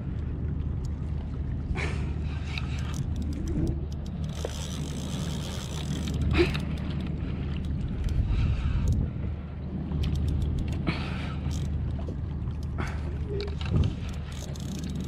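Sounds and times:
low rumble: 0.0s - 15.0s
fishing reel whirring: 2.5s - 9.0s, 10.0s - 11.8s, 13.9s - 15.0s.

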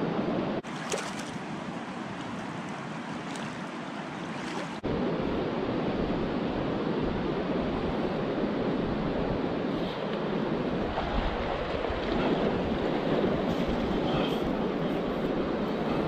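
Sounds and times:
river water rushing: 0.6s - 4.9s
wind on microphone: 4.3s - 16.0s.

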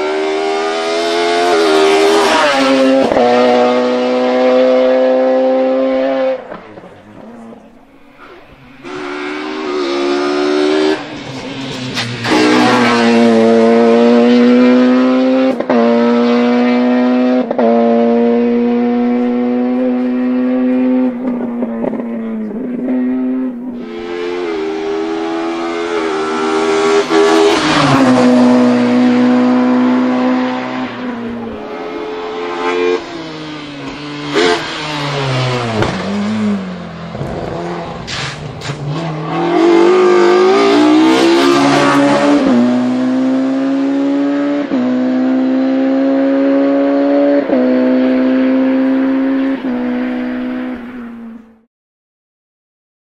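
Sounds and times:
race car engine screaming: 8.2s - 17.3s, 18.4s - 50.8s.

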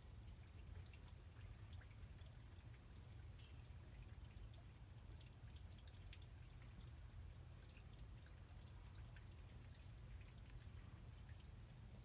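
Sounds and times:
water dripping into dish: 3.4s - 7.0s.

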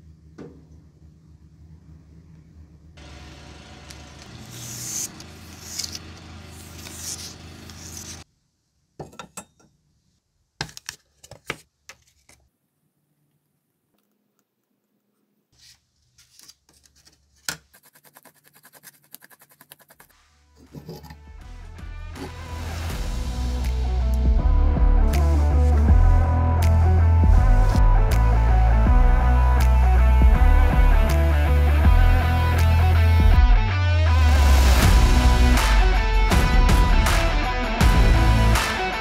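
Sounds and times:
stick scraping on paper card: 4.4s - 8.2s, 16.4s - 20.4s.

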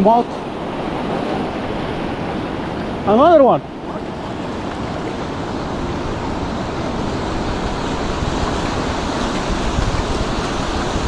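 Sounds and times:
small waves over rocky shore: 0.0s - 11.0s
wind on microphone: 0.0s - 11.0s.

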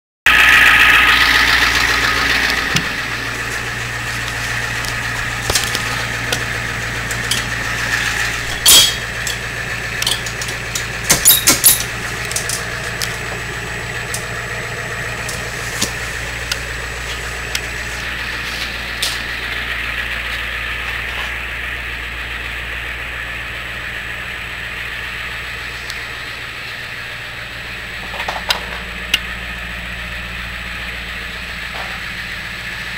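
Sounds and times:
diesel engine idling: 0.3s - 32.9s
sharp clicks and knocks: 4.2s - 13.4s.

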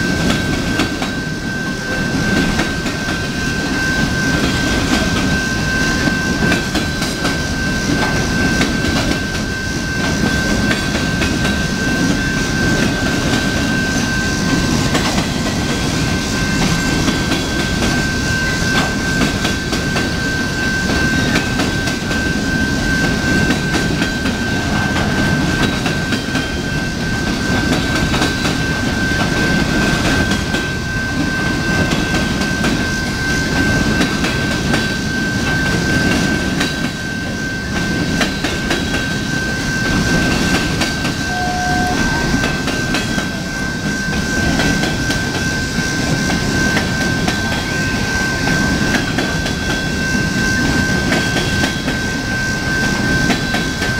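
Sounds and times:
steel wheels rumbling on rail: 0.0s - 53.9s
thin high tone: 40.9s - 44.7s.

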